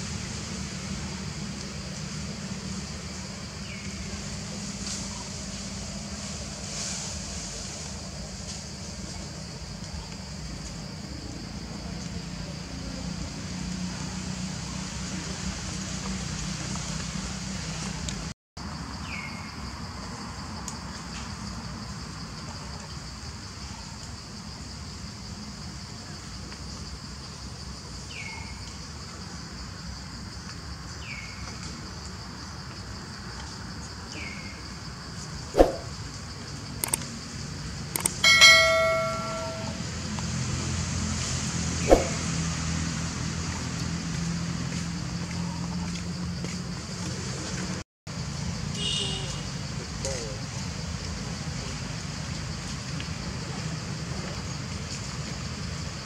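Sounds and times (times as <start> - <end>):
sharp knock: 35.6 - 35.9, 41.9 - 42.2
click: 36.8 - 37.0, 38.0 - 38.2
bright ringing chime: 38.2 - 39.9
high insect buzz: 48.8 - 49.6.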